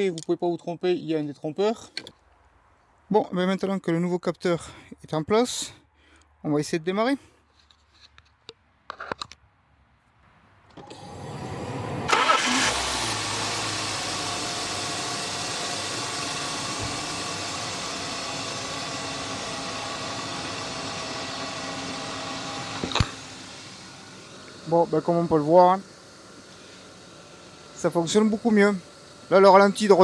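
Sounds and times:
engine starter cranking: 10.7 - 11.2, 12.1 - 16.8
car engine idling: 10.9 - 30.0.

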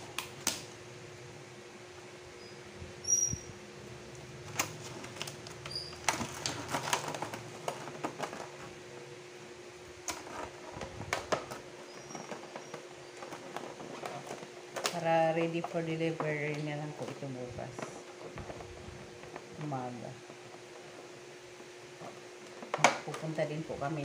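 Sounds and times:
steady low hum: 0.0 - 24.0
plastic containers clicking and crackling: 4.1 - 8.8, 10.0 - 21.2, 22.0 - 23.5.

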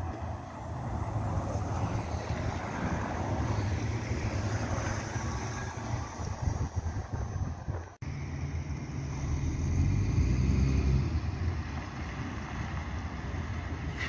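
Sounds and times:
bus engine rumble: 0.0 - 14.0
tyre and road noise: 0.0 - 14.0
wind on the microphone: 5.6 - 8.0.

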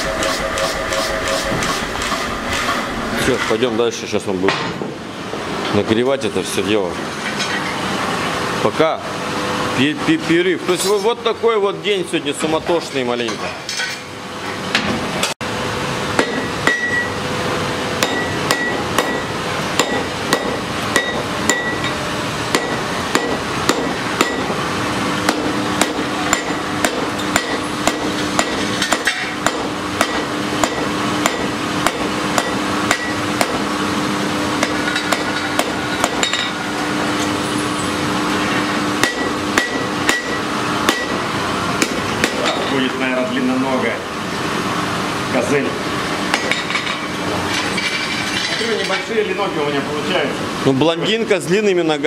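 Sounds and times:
hammer striking anvil: 0.0 - 3.7, 16.2 - 17.1, 18.0 - 24.6, 25.3 - 33.6, 34.6 - 36.6, 39.0 - 41.2, 41.8 - 42.8, 46.3 - 47.0.

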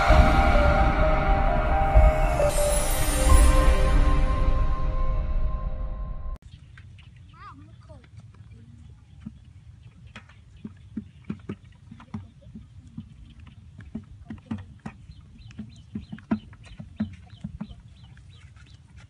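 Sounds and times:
footsteps on a dirt path: 12.2 - 19.0.

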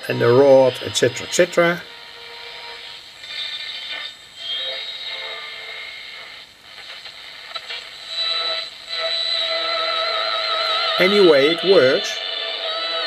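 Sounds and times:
shortwave radio hiss: 0.0 - 13.0
steady whistling tones: 8.0 - 13.0
wavering whistle: 8.0 - 13.0.

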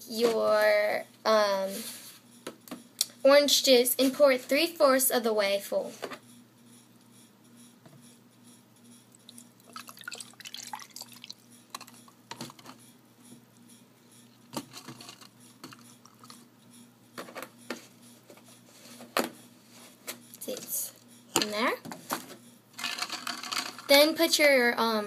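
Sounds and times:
juice trickling into a tumbler: 9.4 - 12.6, 15.6 - 16.4.

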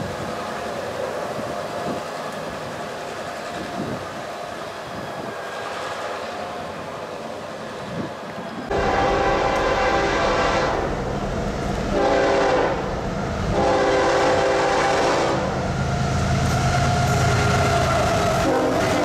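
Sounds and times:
locomotive engine rumble: 0.0 - 19.0
locomotive air horn blasts: 8.7 - 10.9, 11.9 - 12.9, 13.5 - 15.5, 17.0 - 19.0.

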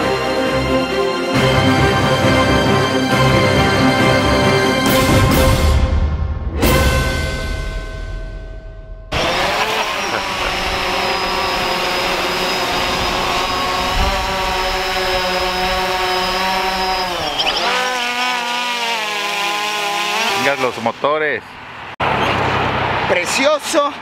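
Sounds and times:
drone propellers whining: 9.1 - 22.7.

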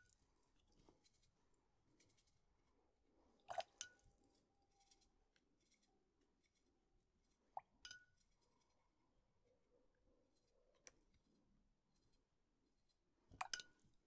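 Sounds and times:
paintbrush clinking on glass jar: 7.8 - 8.4.

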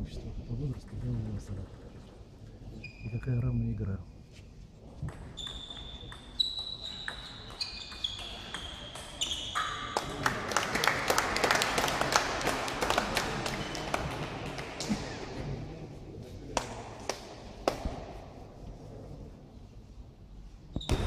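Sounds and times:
spectators clapping: 9.9 - 15.2.

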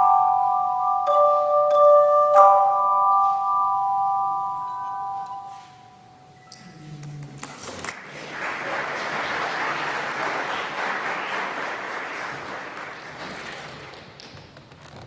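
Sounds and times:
congregation applauding: 7.5 - 14.4.

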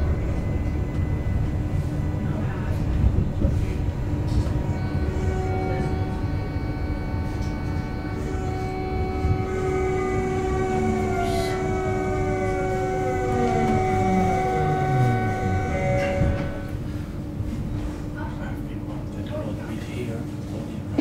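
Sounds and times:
electric traction drive whine: 0.0 - 17.5
train wheels rumbling on track: 0.0 - 19.2.

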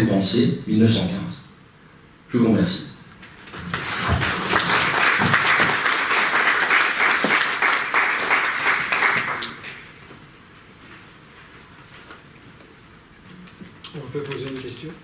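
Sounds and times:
audience applauding: 3.4 - 10.0.

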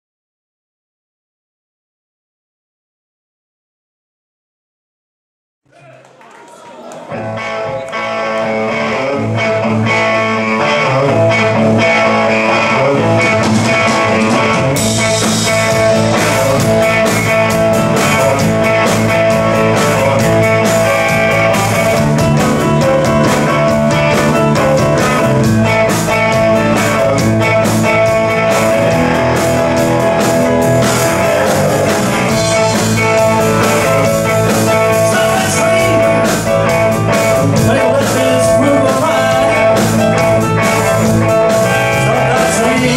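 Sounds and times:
keyboard: 6.7 - 42.9
bass guitar: 7.1 - 42.9
electric guitar: 7.1 - 42.9
drums and cymbals: 13.2 - 42.9.

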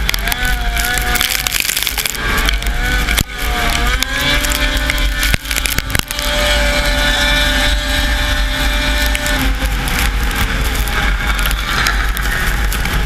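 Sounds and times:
snowmobile engine racing: 0.0 - 13.0.

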